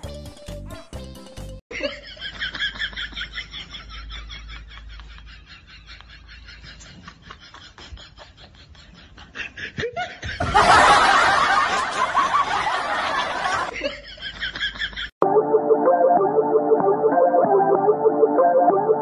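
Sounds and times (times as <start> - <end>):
person laughing: 1.7 - 12.6.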